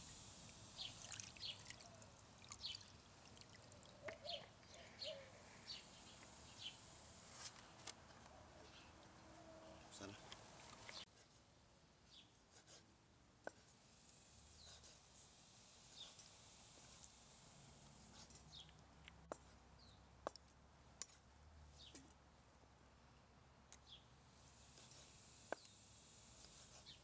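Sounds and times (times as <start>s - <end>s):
small birds chirping: 0.6s - 7.4s, 8.2s - 11.1s, 15.8s - 16.3s, 18.1s - 18.8s, 24.7s - 25.8s.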